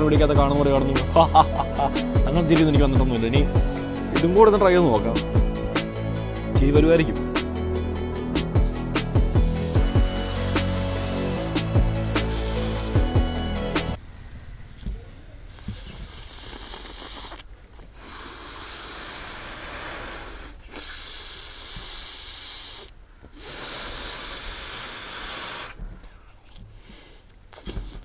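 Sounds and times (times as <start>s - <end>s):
gas hissing through balloon neck: 3.5s - 14.0s, 15.5s - 26.0s, 26.8s - 28.0s.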